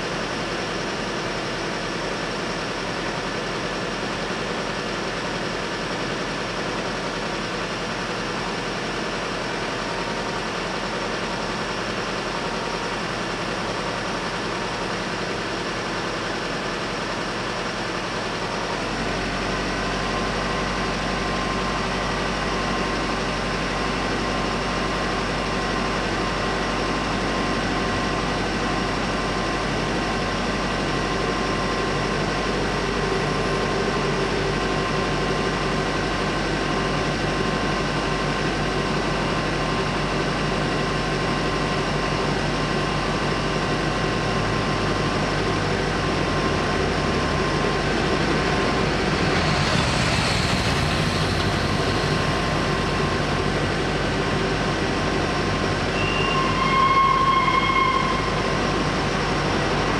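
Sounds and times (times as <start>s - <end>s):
car engines idling: 0.0s - 56.0s
deep steady engine hum: 0.0s - 59.9s
road traffic noise: 39.8s - 59.9s.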